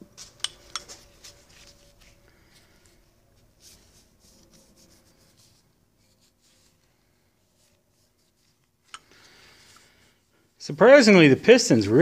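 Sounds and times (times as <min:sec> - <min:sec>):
gloved hands handling metal part: 0:00.0 - 0:10.2.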